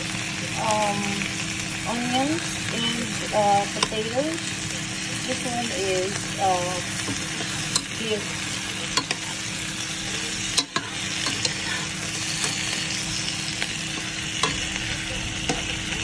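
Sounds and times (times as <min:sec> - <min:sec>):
food sizzling in a pot: 0:00.0 - 0:16.0
metal spoon clinking against pot: 0:07.4 - 0:08.0, 0:08.9 - 0:09.3, 0:10.5 - 0:11.6, 0:12.4 - 0:14.8.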